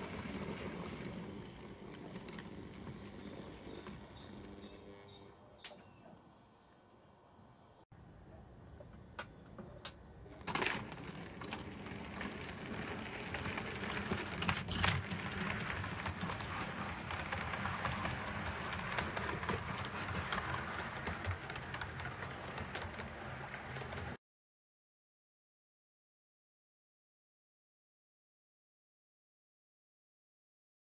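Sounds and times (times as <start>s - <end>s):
model train wheels clicking: 0.0s - 4.8s, 9.8s - 24.2s.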